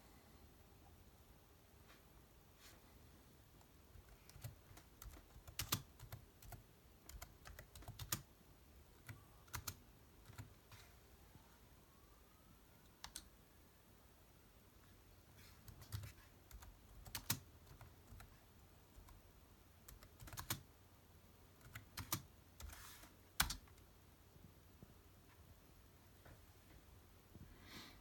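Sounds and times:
typing on computer keyboard: 0:04.0 - 0:08.3, 0:08.9 - 0:10.6, 0:13.0 - 0:13.3, 0:15.6 - 0:19.2, 0:19.9 - 0:20.7, 0:21.6 - 0:22.8, 0:23.4 - 0:23.8.

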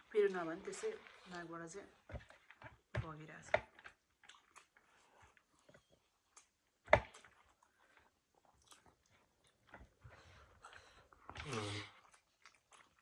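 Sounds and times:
chewing and wet mouth sounds: 0:03.5 - 0:13.0.

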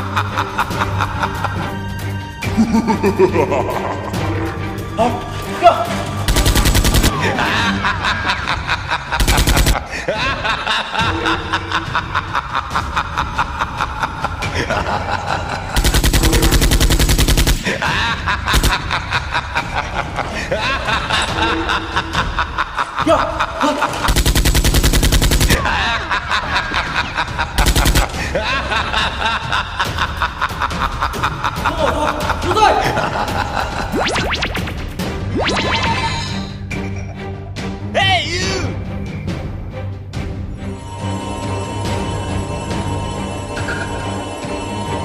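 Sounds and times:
background music: 0:00.0 - 0:45.0
automatic gunfire: 0:06.3 - 0:07.2, 0:09.2 - 0:09.8, 0:15.8 - 0:17.7, 0:24.1 - 0:25.6, 0:27.6 - 0:28.1
machine-gun fire: 0:06.3 - 0:07.2, 0:09.2 - 0:09.8, 0:15.8 - 0:17.7, 0:18.5 - 0:18.8, 0:24.1 - 0:25.6, 0:27.6 - 0:28.2.

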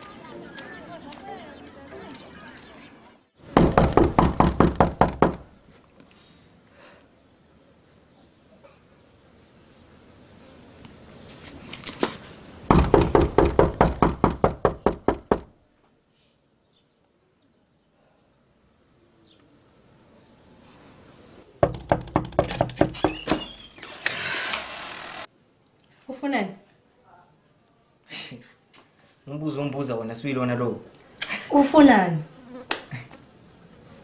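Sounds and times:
rapid knocking on a door: 0:03.6 - 0:05.5, 0:12.7 - 0:15.5, 0:21.6 - 0:23.5.

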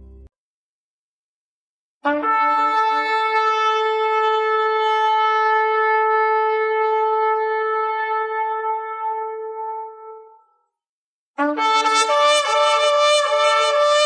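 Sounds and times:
shofar blast: 0:02.0 - 0:10.3, 0:11.4 - 0:14.0.

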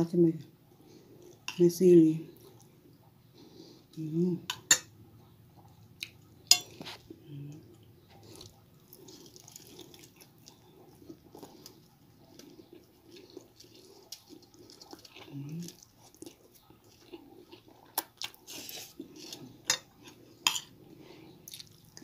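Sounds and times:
person chewing food: 0:00.7 - 0:01.5, 0:04.6 - 0:22.0
cutlery clinking on a plate: 0:06.5 - 0:06.8, 0:19.7 - 0:20.7.

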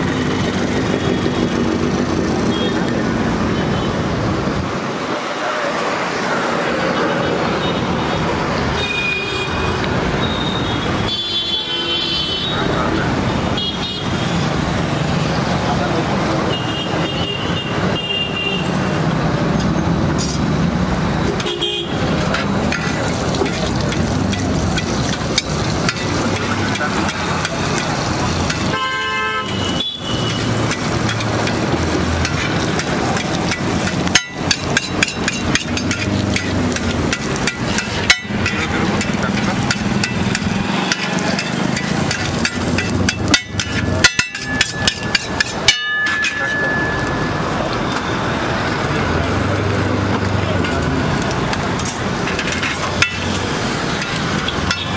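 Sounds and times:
street traffic noise: 0:00.0 - 0:54.9
metal spatulas on iron griddle: 0:21.4 - 0:47.3, 0:50.6 - 0:54.9
vehicle horn honking: 0:28.7 - 0:30.4.

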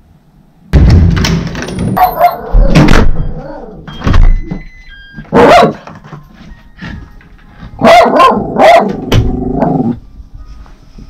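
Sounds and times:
small dog barking: 0:05.3 - 0:05.8, 0:07.8 - 0:09.0.

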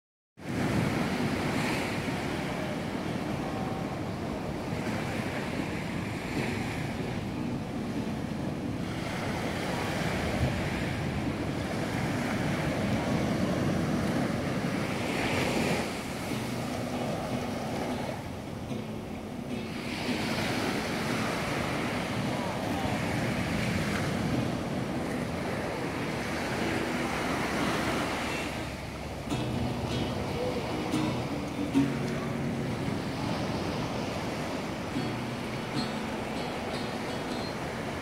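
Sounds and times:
surf washing on sandy beach: 0:00.4 - 0:38.0
wind on microphone: 0:00.4 - 0:38.0.

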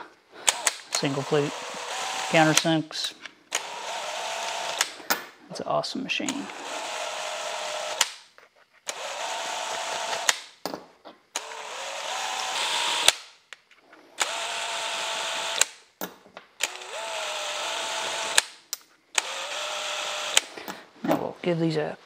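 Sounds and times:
cordless drill whining: 0:00.4 - 0:02.7, 0:03.5 - 0:05.0, 0:06.3 - 0:08.2, 0:08.9 - 0:10.3, 0:11.4 - 0:13.2, 0:14.2 - 0:15.8, 0:16.6 - 0:18.5, 0:19.2 - 0:20.6.

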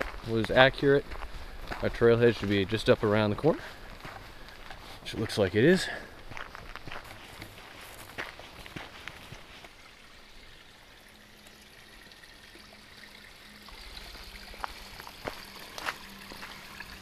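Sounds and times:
footsteps on trail: 0:00.0 - 0:10.0, 0:13.7 - 0:17.0
stream flowing: 0:00.0 - 0:17.0.

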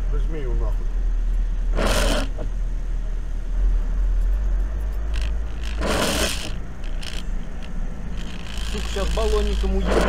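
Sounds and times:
car engine and tyre rumble: 0:00.0 - 0:10.0
short swishing scrape: 0:01.7 - 0:02.3, 0:05.6 - 0:07.2.

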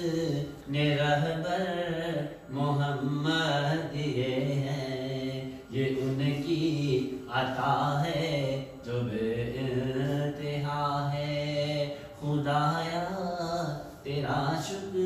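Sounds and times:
man chanting unaccompanied: 0:00.0 - 0:15.0.

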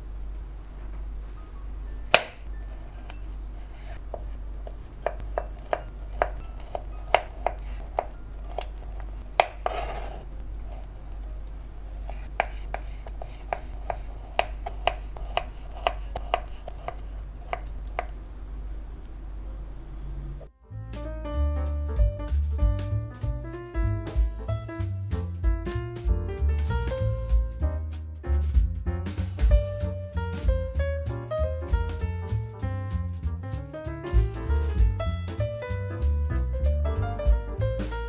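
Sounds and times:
knife tapping cutting board: 0:02.1 - 0:03.2, 0:03.8 - 0:10.2, 0:12.0 - 0:18.2
knife scraping board: 0:02.7 - 0:10.8, 0:12.0 - 0:18.2.

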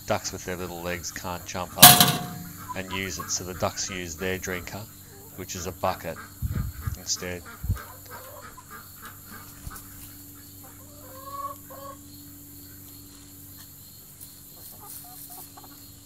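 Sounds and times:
chickens clucking: 0:01.8 - 0:12.0, 0:14.6 - 0:15.9.

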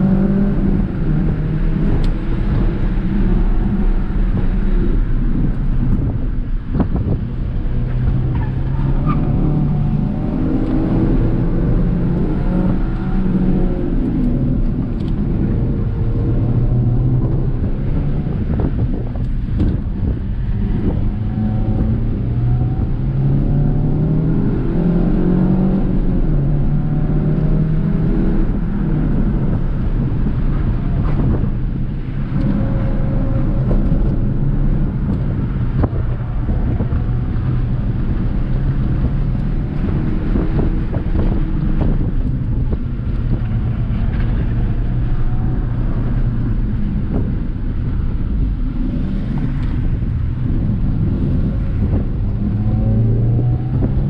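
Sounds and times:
car engine revving: 0:00.0 - 0:54.0
wind noise: 0:00.0 - 0:54.0.

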